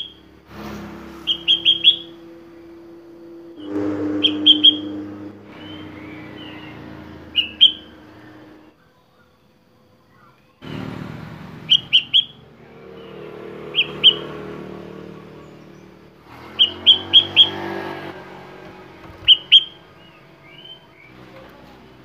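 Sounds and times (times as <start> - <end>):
bird chirping: 1.2 - 2.4, 3.6 - 10.7, 11.6 - 21.5.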